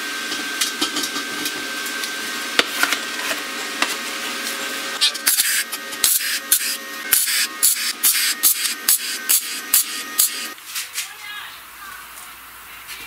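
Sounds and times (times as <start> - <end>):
welder crackling: 3.8 - 10.6
steady hum: 4.5 - 10.7.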